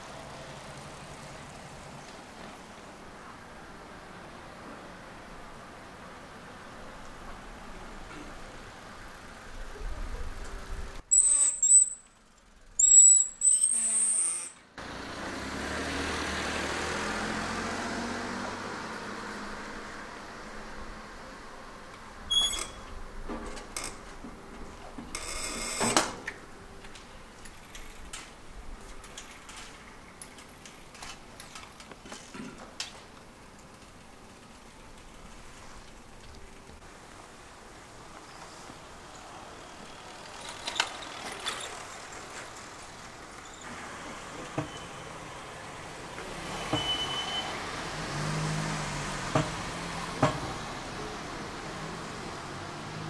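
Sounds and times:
low background street noise: 0:00.0 - 0:53.0
brief high squeak: 0:11.1 - 0:12.1, 0:12.8 - 0:14.6, 0:22.3 - 0:22.9, 0:46.5 - 0:47.6.

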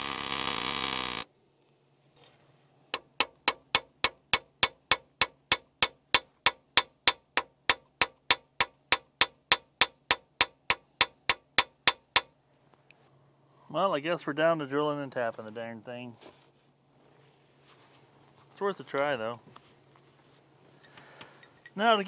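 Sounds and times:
hammer striking metal bolt: 0:03.0 - 0:12.3.

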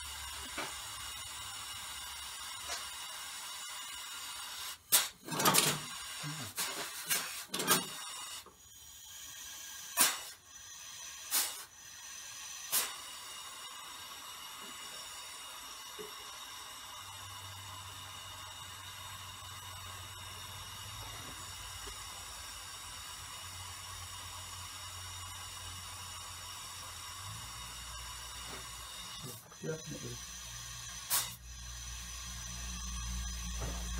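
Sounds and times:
air valves hissing and knocking: 0:00.0 - 0:33.9.

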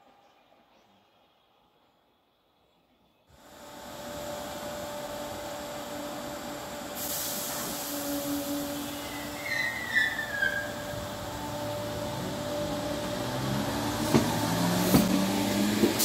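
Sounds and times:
electric train whine: 0:03.3 - 0:16.0.

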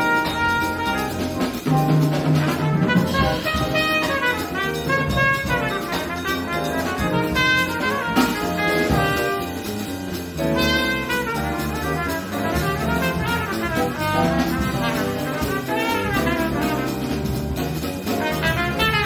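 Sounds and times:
alto saxophones: 0:00.0 - 0:01.6, 0:02.4 - 0:09.9, 0:10.5 - 0:17.4, 0:18.2 - 0:19.0
drum kit: 0:00.0 - 0:19.0
piano: 0:00.0 - 0:19.0
trumpet leading melody: 0:00.0 - 0:19.0
electric bass guitar: 0:04.4 - 0:19.0.

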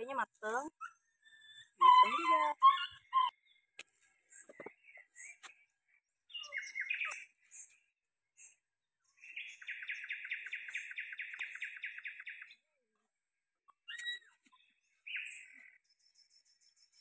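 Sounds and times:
bird chirping calls: 0:00.0 - 0:12.7, 0:13.7 - 0:17.0
bird trilling: 0:00.8 - 0:03.4.

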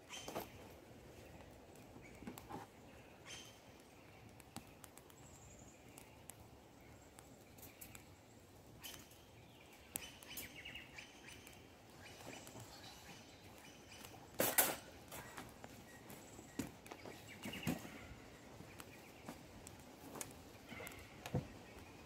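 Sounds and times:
faint bird chirps: 0:02.0 - 0:14.4.

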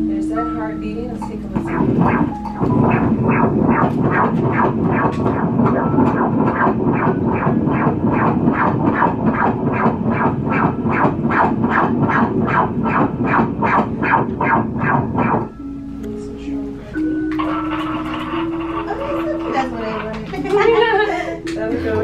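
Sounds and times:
steady noise: 0:00.0 - 0:21.2
doppler fetal heartbeat: 0:00.9 - 0:15.5, 0:17.3 - 0:21.2.

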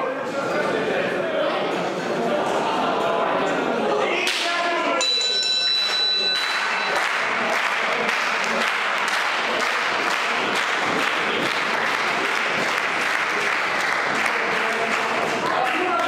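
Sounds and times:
crowd applauding: 0:05.7 - 0:16.0.

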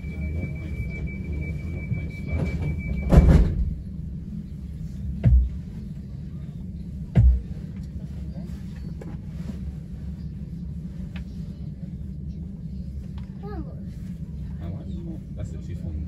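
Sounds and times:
train cabin rumble: 0:00.0 - 0:16.0
heavy thumps: 0:05.2 - 0:05.6, 0:07.1 - 0:07.6.

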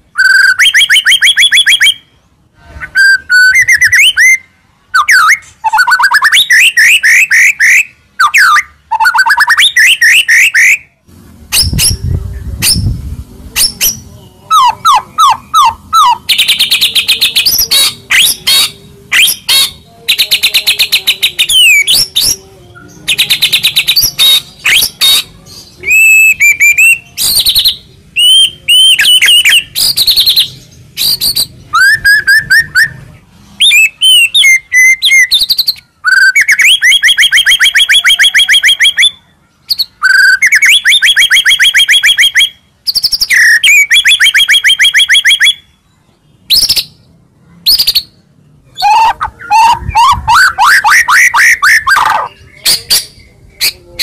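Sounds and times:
songbird singing rapid trills: 0:11.5 - 0:54.0.

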